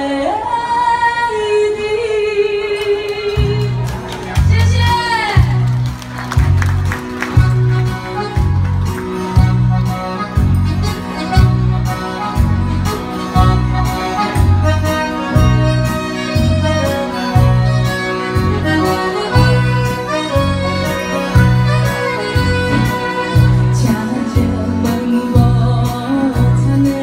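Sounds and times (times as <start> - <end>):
woman singing: 0.0 - 3.9, 22.8 - 27.0
keyboard chords: 3.4 - 27.0
saxophone melody: 7.1 - 24.6
bass beat: 7.4 - 13.8, 22.4 - 24.8.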